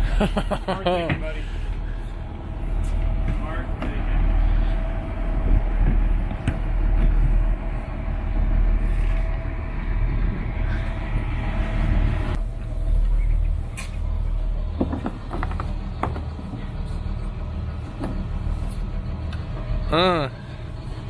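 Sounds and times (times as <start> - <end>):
diesel engines idling: 0.0 - 21.0
boat fender creaking and knocking: 14.7 - 16.6.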